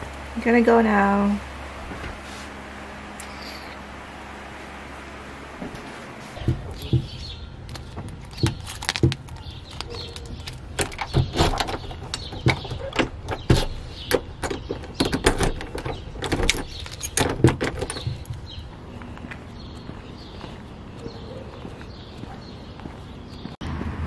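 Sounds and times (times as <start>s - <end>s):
keys jingling: 6.6s - 18.4s
lock clicking: 7.7s - 18.2s.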